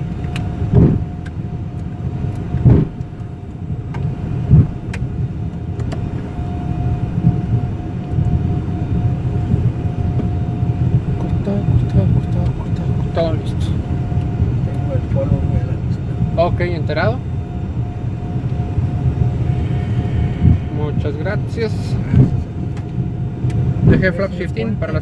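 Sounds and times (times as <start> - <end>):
steady tone: 0.0 - 24.3
jet engines rumbling: 0.0 - 25.0
heavy thumps: 2.6 - 3.0.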